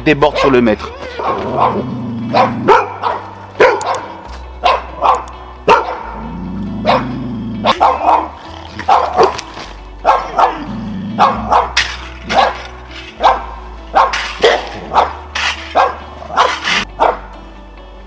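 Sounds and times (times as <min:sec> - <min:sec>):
background music: 0:00.0 - 0:18.0
dog barking sharply: 0:01.2 - 0:06.0, 0:07.7 - 0:08.3, 0:08.9 - 0:09.4, 0:10.0 - 0:10.6, 0:11.2 - 0:12.6.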